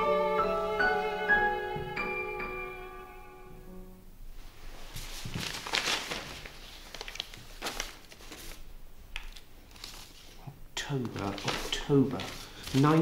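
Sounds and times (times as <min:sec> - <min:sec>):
music: 0:00.0 - 0:04.1
rustles and scrapes of handling: 0:04.3 - 0:13.0.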